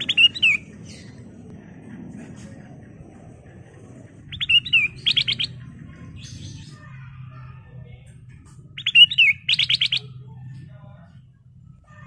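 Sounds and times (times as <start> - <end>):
bird singing: 0.0 - 1.5, 3.2 - 7.8, 8.6 - 10.7
faint low hum: 0.0 - 12.0.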